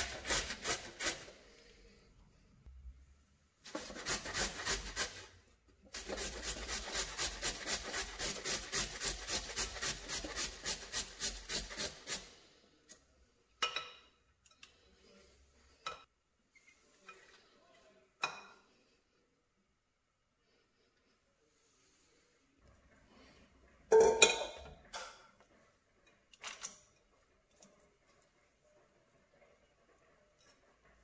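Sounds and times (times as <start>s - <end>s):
carrot rasping on metal grater: 3.7s - 5.2s, 5.9s - 12.2s.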